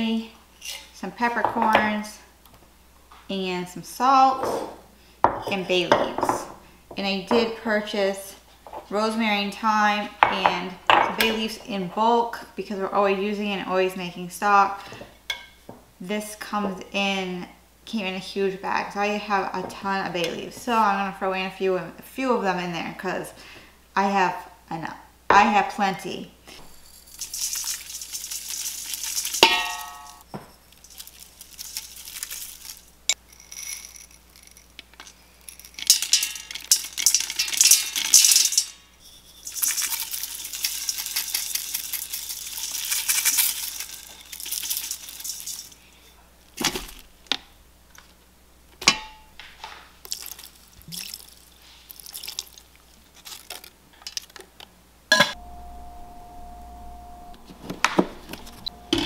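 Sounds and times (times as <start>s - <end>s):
dried herbs and salt pouring: 26.6s - 38.6s, 39.3s - 46.0s, 50.1s - 53.7s
steady hum with held tone: 29.4s - 31.8s, 43.8s - 50.1s, 53.8s - 59.0s.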